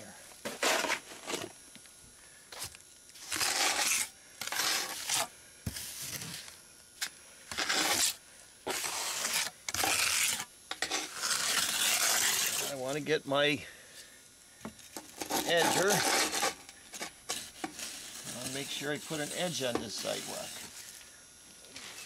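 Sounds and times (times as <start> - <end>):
trowel scraping wet concrete: 0.5 - 1.5, 2.6 - 6.4, 7.5 - 13.0, 15.0 - 20.9.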